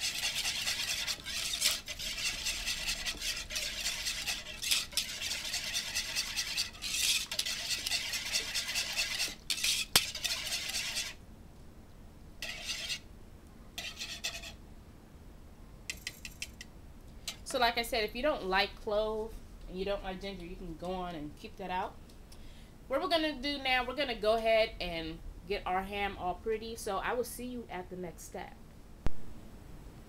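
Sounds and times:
whisk clinking against bowl: 0:00.0 - 0:11.2, 0:12.4 - 0:13.0.

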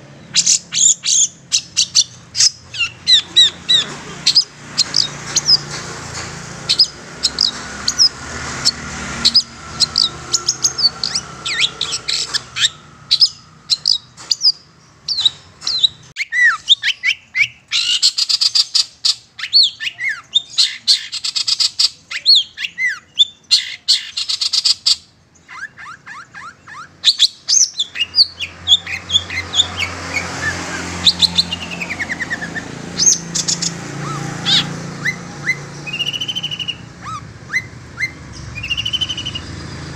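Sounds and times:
harsh rasping bird chatter: 0:00.0 - 0:39.9
bird chirps and whistles: 0:09.3 - 0:39.5.

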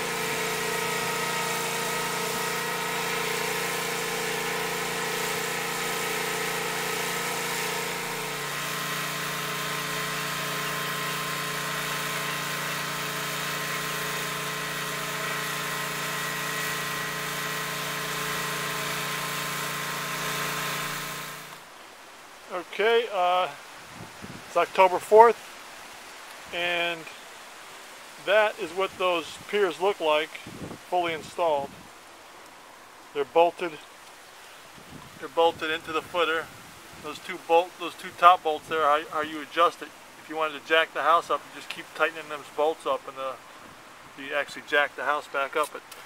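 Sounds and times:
hydraulic machine humming: 0:00.0 - 0:21.7.

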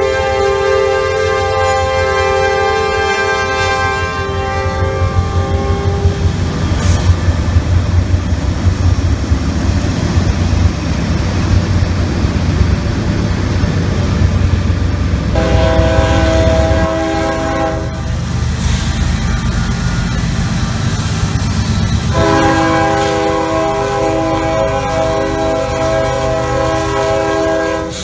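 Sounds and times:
multi-chime train horn: 0:00.0 - 0:06.3, 0:15.4 - 0:18.2, 0:22.0 - 0:28.0
diesel locomotive engines rumbling: 0:00.0 - 0:28.0
train cars rolling over rails: 0:05.2 - 0:28.0.

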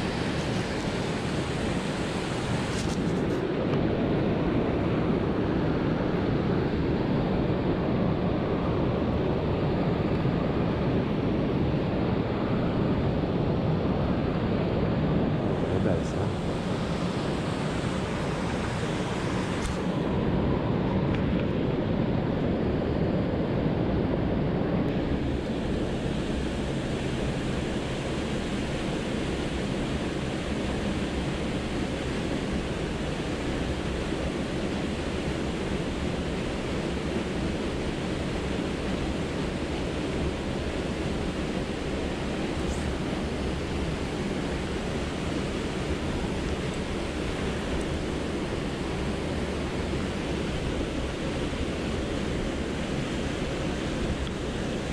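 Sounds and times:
river water rushing: 0:14.6 - 0:20.7, 0:25.0 - 0:54.9.

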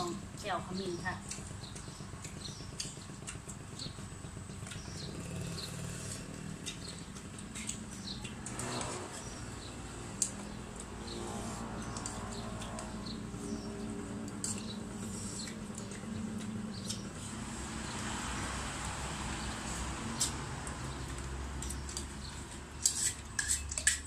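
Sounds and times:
spoons clicking on bowls: 0:22.8 - 0:24.0.

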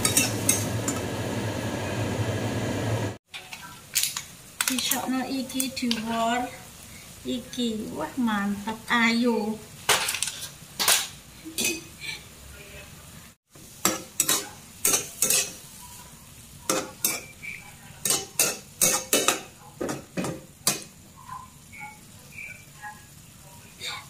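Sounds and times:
metal spatula scraping a pan: 0:00.0 - 0:00.7
steady sizzle: 0:00.0 - 0:24.0.

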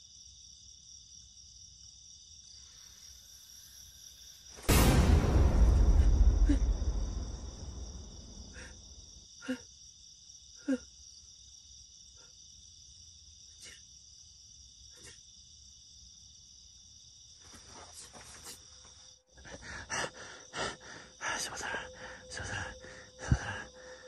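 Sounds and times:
crickets chirring: 0:00.0 - 0:24.0
low rumble: 0:04.7 - 0:09.1.

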